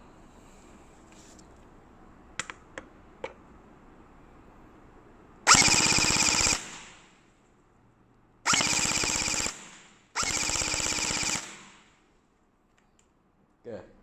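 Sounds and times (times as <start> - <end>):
gel blaster full-auto bursts: 5.5 - 7.1, 8.5 - 12.0.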